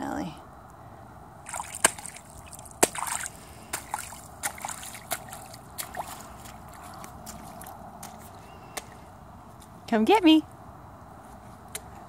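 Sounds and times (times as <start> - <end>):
boots splashing through puddle: 1.4 - 9.0.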